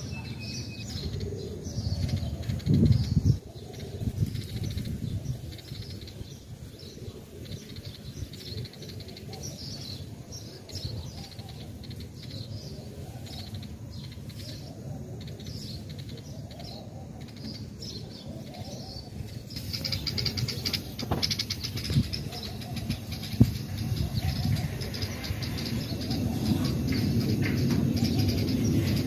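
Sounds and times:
birds chirping: 0.0 - 29.0
steady low rumble: 19.2 - 29.0.

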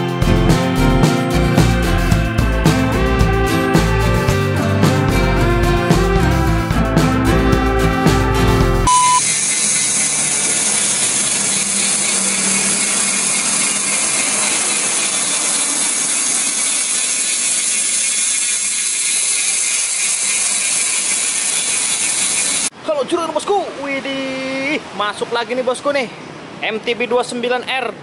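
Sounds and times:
test-tone beep: 8.9 - 9.3.

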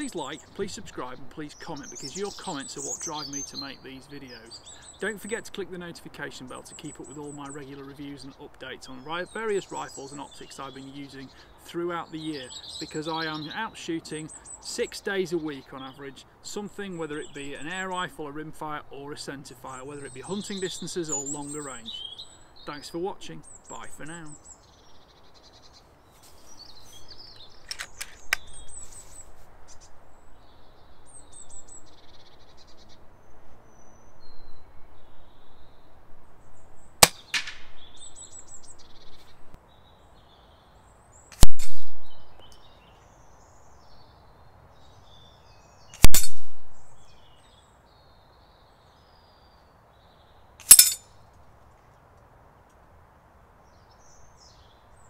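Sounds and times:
birds chirping: 0.0 - 55.0
pellets hitting metal target: 50.6 - 51.0.

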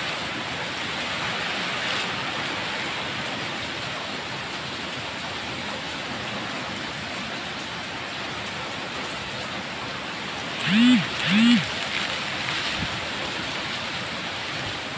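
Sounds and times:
heavy rain: 0.0 - 10.6.

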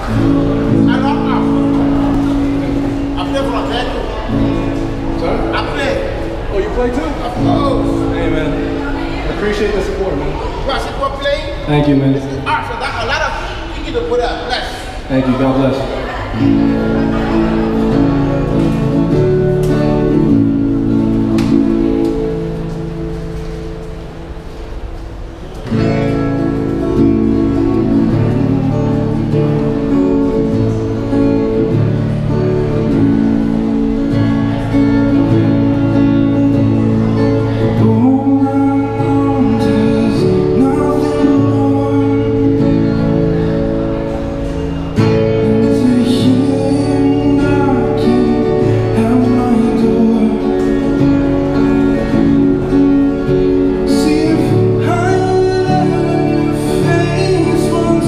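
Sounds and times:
acoustic guitar strummed: 0.0 - 13.6, 14.9 - 58.0
man singing: 27.4 - 30.3, 37.4 - 43.2, 45.0 - 52.5, 53.6 - 58.0.

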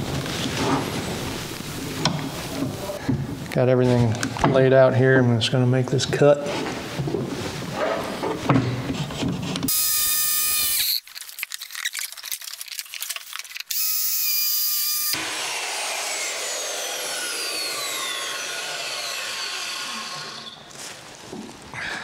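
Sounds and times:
circular saw motor whining: 9.7 - 11.0, 13.7 - 20.7
crackling clicks: 10.8 - 13.8.

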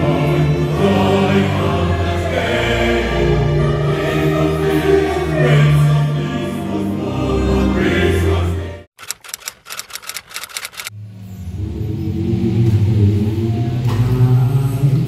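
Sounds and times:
choir singing: 0.0 - 8.9
sharp clicks: 9.0 - 10.9.

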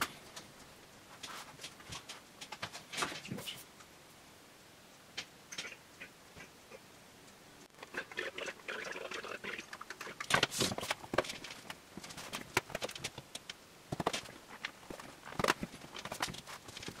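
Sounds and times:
clattering and rustling: 1.1 - 3.6, 10.0 - 17.0
small objects clicking and tapping: 9.6 - 17.0.

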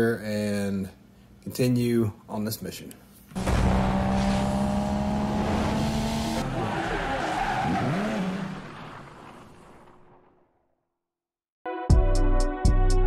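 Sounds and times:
car engine note: 3.4 - 7.0.

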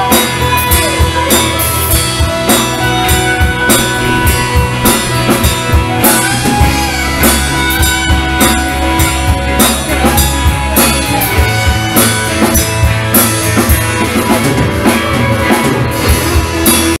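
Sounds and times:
band playing drums and guitar: 0.0 - 17.0.

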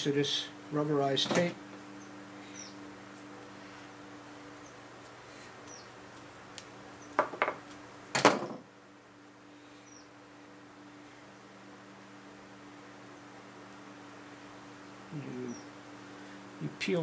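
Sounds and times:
steady low hum: 0.0 - 17.0
objects knocking on wooden workbench: 7.2 - 7.6, 8.2 - 8.6.

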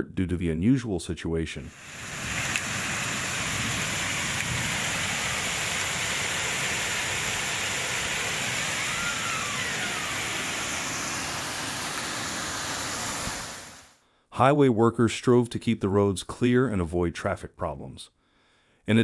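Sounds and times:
heavy rain hissing: 1.7 - 14.0.

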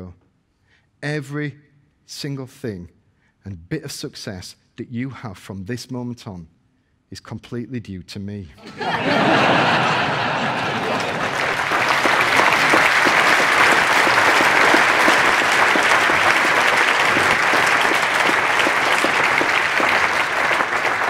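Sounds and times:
audience applauding: 8.6 - 21.0.

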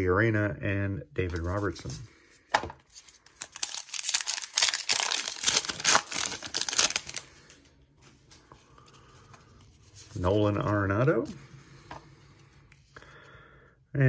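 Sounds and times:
foil wrapper tearing and crinkling: 2.9 - 7.5.

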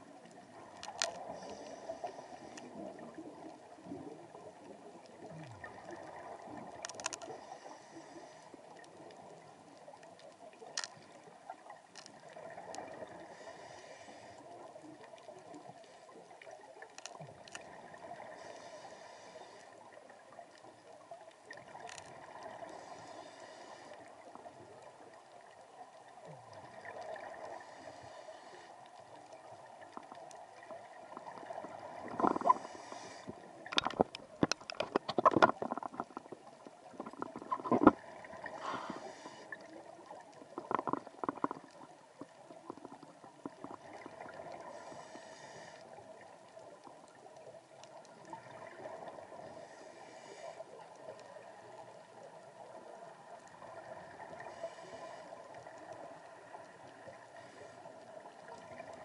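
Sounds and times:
faint steady hiss: 0.0 - 59.0
underwater breath bubbling: 12.3 - 14.8, 26.4 - 46.2, 48.4 - 51.5, 53.8 - 59.0.

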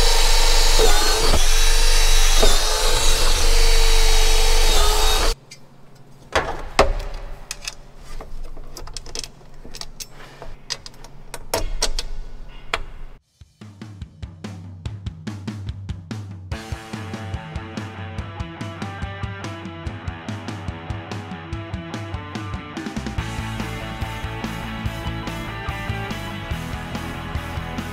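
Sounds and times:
power drill boring: 0.0 - 5.4.

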